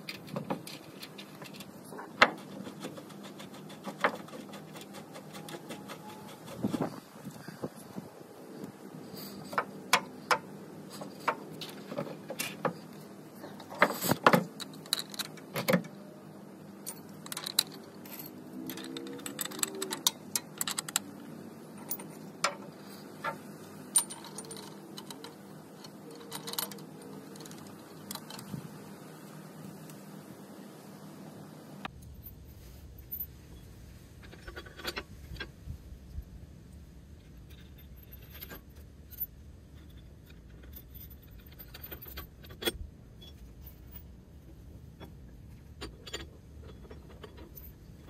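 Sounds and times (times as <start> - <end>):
metal bolts clinking: 13.6 - 16.0, 16.8 - 28.5, 37.3 - 44.1, 44.9 - 48.0.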